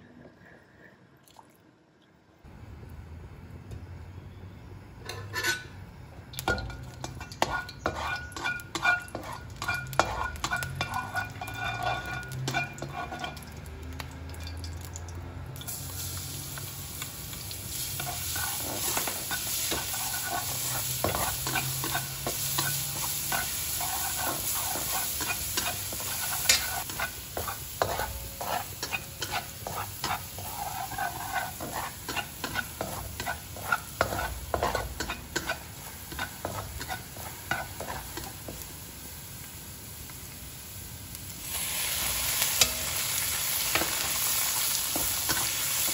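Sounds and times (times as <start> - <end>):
spatula scraping and tapping pan: 5.0 - 5.7, 6.4 - 13.7, 17.9 - 38.7, 44.8 - 45.9
garlic sizzling in a wok: 5.0 - 45.9.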